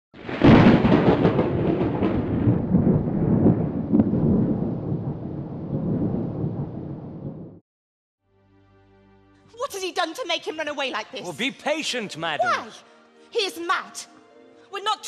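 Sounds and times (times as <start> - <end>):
thunder crack and rumble: 0.2 - 7.6.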